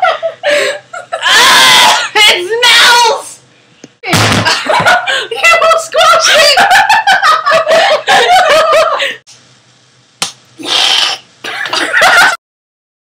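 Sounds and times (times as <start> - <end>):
girls laughing and squealing: 1.0 - 2.1, 4.6 - 9.0.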